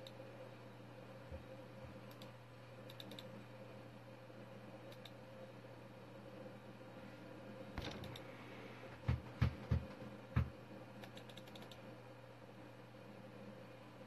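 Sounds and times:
steady low hum: 0.0 - 14.0
keyboard and mouse clicks: 2.1 - 2.3, 2.9 - 3.3, 4.9 - 5.2, 7.8 - 8.3, 9.0 - 11.8.

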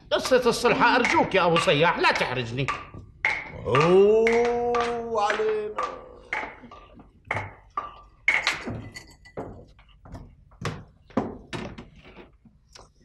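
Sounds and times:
glasses and trays clinking: 0.2 - 10.0.

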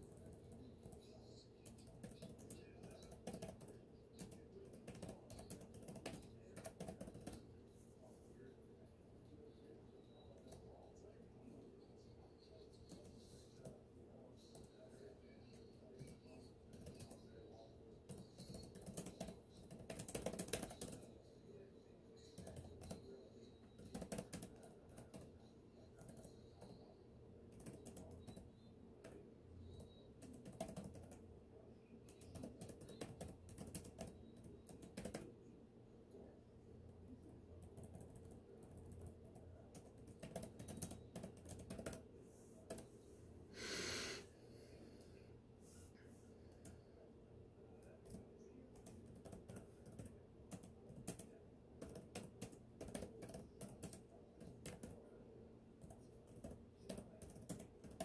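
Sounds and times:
typing on a computer keyboard: 0.0 - 7.4, 16.0 - 17.4, 18.0 - 21.1, 22.2 - 26.9, 27.5 - 31.2, 32.0 - 35.3, 37.6 - 42.0, 42.6 - 42.9, 47.8 - 55.1, 55.8 - 58.0.

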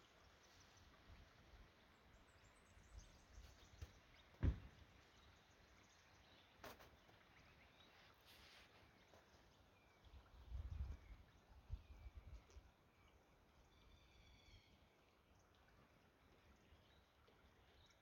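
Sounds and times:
faint bird chirps: 2.2 - 15.0
sharp thump: 4.4 - 4.7.

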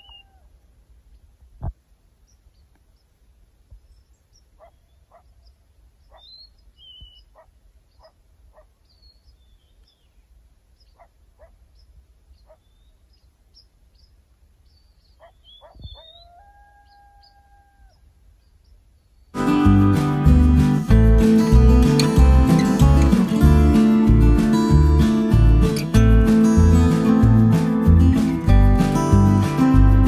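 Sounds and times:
coyotes yipping and calling: 0.0 - 0.6, 4.0 - 9.8, 10.8 - 14.1, 14.7 - 18.8.

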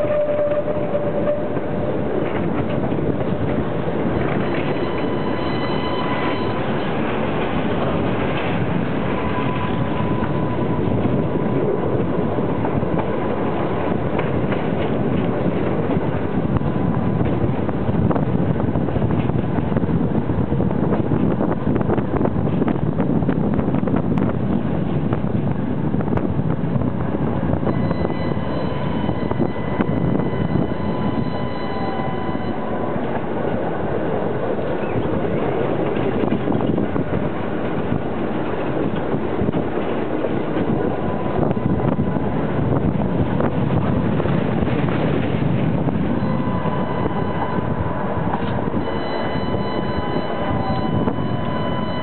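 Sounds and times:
tram rolling rumble: 0.0 - 52.0
wind buffeting microphone: 0.0 - 52.0
faint high whine: 27.7 - 33.2, 46.2 - 52.0.

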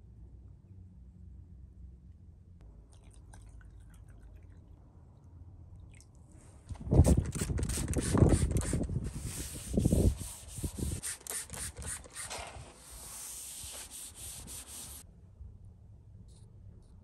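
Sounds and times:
paper towel rubbing metal tank: 7.1 - 15.0.

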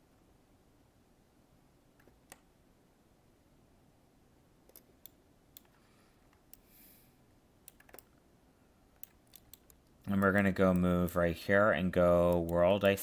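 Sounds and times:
soft hiss: 0.0 - 13.0
mouse and keyboard clicks: 2.0 - 2.5, 4.7 - 6.6, 7.6 - 8.2, 9.0 - 11.1.

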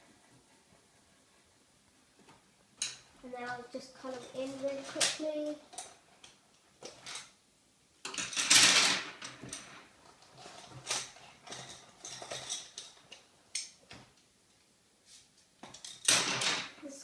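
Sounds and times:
handling noise scraping and rattling: 2.8 - 7.4, 8.0 - 14.2, 15.2 - 16.8.

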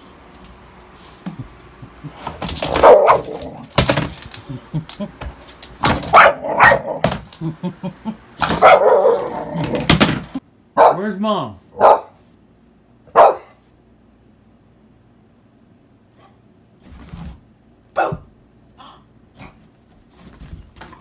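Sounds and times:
dog barking: 2.7 - 3.4, 6.1 - 7.0, 8.5 - 9.5, 10.8 - 11.0, 11.7 - 12.2, 13.1 - 13.6, 17.9 - 18.3.

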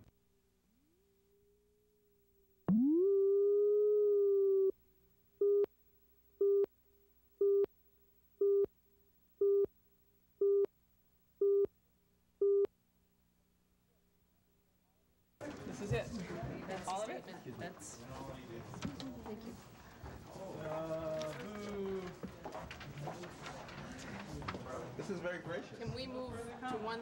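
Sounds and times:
electronic test tone: 2.7 - 4.7.

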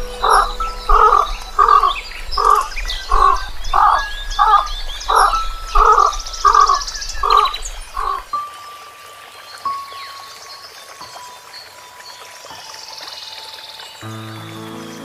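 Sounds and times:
animal calling repeatedly: 0.0 - 8.3
faint bird chirps: 0.0 - 15.0.

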